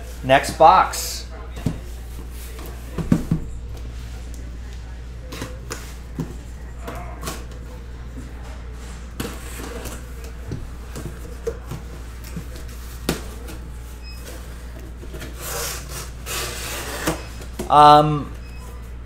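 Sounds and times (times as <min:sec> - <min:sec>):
cardboard rubbing and scraping: 0:11.1 - 0:17.3.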